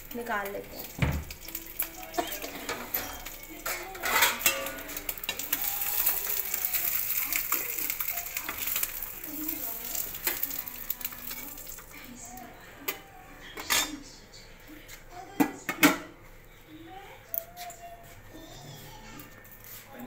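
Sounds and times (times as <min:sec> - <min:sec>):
eggs sizzling in hot oil: 0:00.0 - 0:12.4
metal spatula scraping pan: 0:02.1 - 0:06.2.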